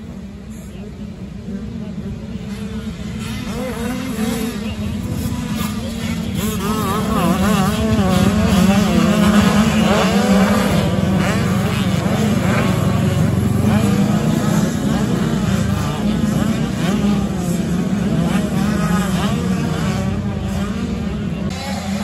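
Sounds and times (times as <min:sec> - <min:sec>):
motocross bikes revving: 0:00.0 - 0:22.0.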